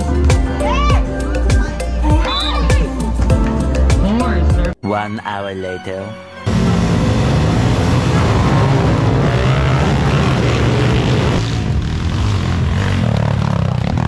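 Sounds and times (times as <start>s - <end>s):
motorcycle engines running: 6.5s - 14.0s.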